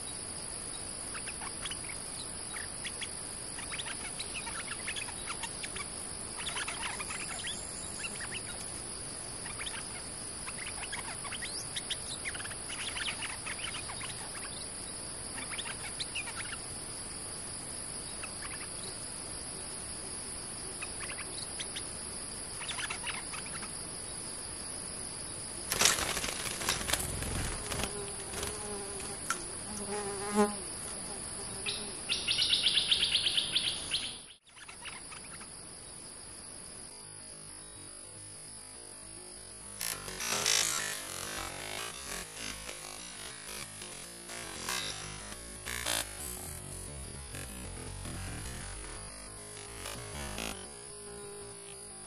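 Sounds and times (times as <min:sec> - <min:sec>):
insects droning: 0:00.0 - 0:52.0
bird chirps: 0:01.1 - 0:08.6, 0:31.7 - 0:35.4
loud rustle and knock: 0:25.7 - 0:29.3.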